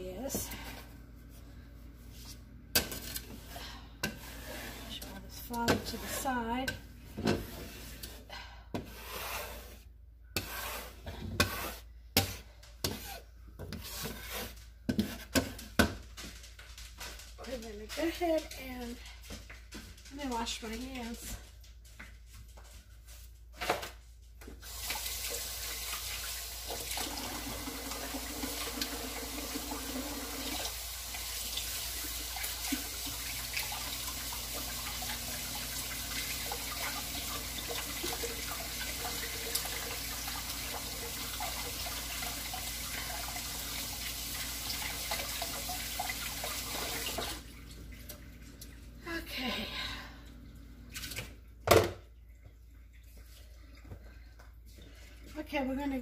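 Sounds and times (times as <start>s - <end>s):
tap water running into sink: 24.5s - 48.8s.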